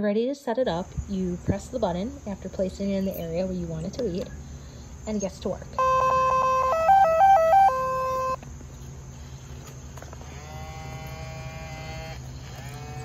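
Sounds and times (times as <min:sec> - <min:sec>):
electronic start-up beeps: 0:05.8 - 0:08.4
motor whine: 0:05.8 - 0:08.4, 0:09.2 - 0:13.0.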